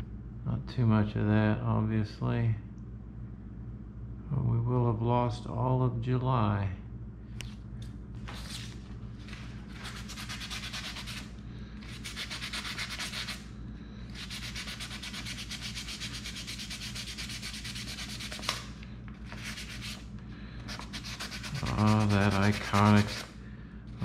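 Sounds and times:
steady low hum: 0.0s - 24.0s
sandpaper rubbing coin: 9.8s - 11.3s, 11.9s - 13.4s, 14.2s - 18.5s, 19.3s - 20.0s, 20.7s - 23.3s.

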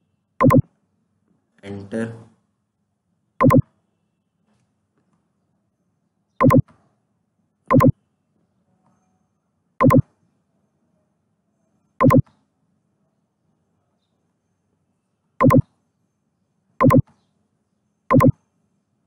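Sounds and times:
sharp computer clicks: 0.4s - 0.7s, 3.4s - 3.7s, 6.4s - 6.7s, 7.7s - 8.0s, 9.8s - 10.1s, 12.0s - 12.3s, 15.4s - 15.7s, 16.8s - 17.1s, 18.1s - 18.4s.

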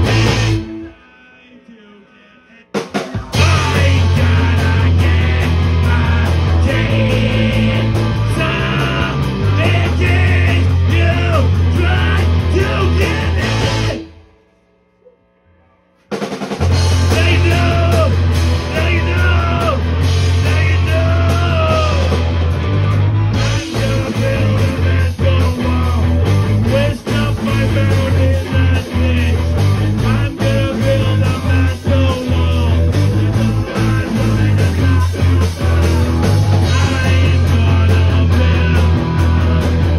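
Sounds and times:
drum kit: 0.0s - 0.9s, 2.7s - 14.4s, 16.0s - 39.9s
distorted electric guitars: 0.0s - 39.9s
man singing into microphone: 0.8s - 14.0s, 17.1s - 19.8s, 20.4s - 22.1s, 23.4s - 32.9s, 33.6s - 35.6s, 36.7s - 39.4s.

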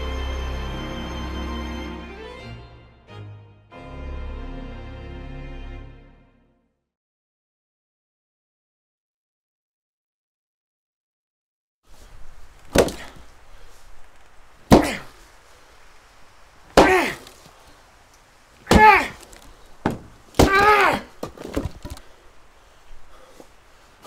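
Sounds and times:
axe chopping wood: 12.6s - 13.3s, 14.7s - 15.2s, 16.7s - 17.4s, 18.6s - 22.1s.

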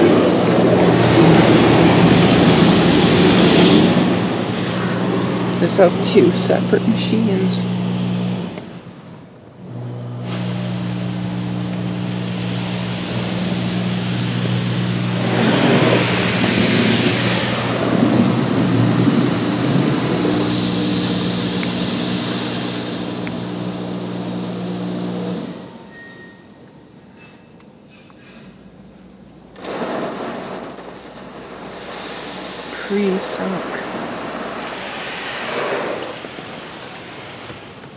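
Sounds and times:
water spray hissing on car: 0.0s - 6.6s, 10.2s - 25.5s, 29.7s - 37.8s
car wash motor and pump hum: 0.0s - 25.9s, 28.8s - 37.9s.

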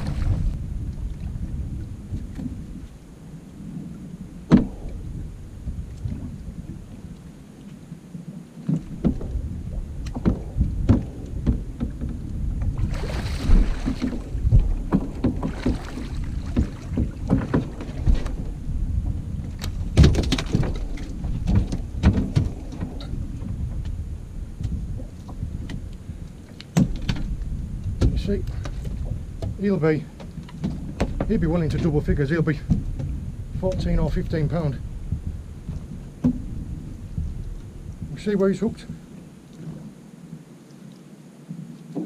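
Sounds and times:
rushing splash: 0.0s - 0.6s, 12.8s - 17.3s
knocks and thuds on hull: 0.0s - 2.9s, 4.4s - 7.0s, 8.6s - 24.0s, 26.7s - 38.2s
water slapping against boat: 0.0s - 40.0s
wind rumbling on microphone: 0.0s - 42.0s.

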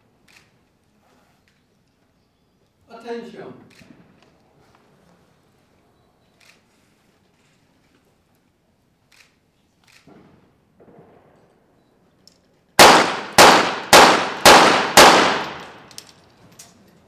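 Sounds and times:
pistol shots with ringing echo: 12.8s - 15.9s.

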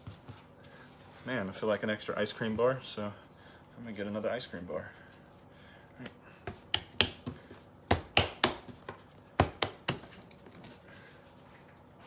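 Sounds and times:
hands slapping dough on board: 6.0s - 10.2s.

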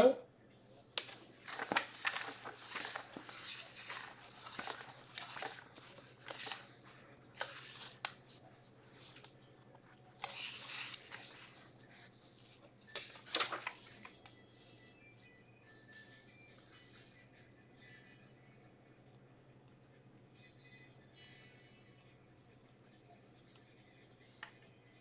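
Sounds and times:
faint low hum: 0.0s - 25.0s
rustling and crinkling handling noise: 0.7s - 14.4s.

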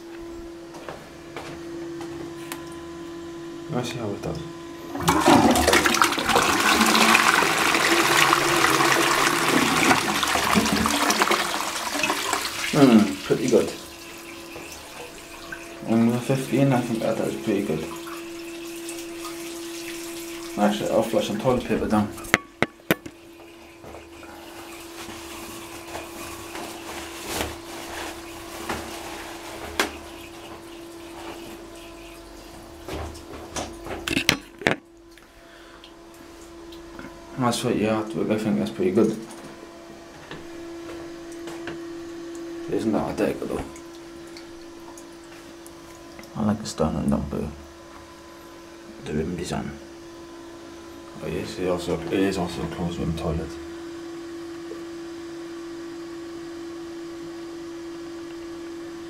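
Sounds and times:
fill valve whine: 0.0s - 59.0s
toilet flushing: 4.7s - 55.4s
cistern water hissing: 4.8s - 32.9s.

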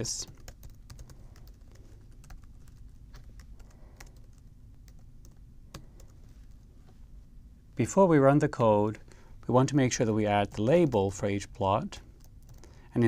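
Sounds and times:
faint keyboard typing: 0.0s - 7.0s, 10.3s - 12.9s.

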